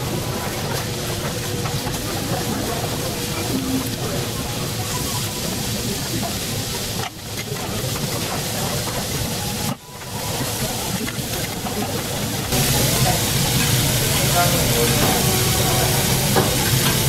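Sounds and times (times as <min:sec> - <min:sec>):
steak sizzling on a griddle: 0:12.5 - 0:17.0.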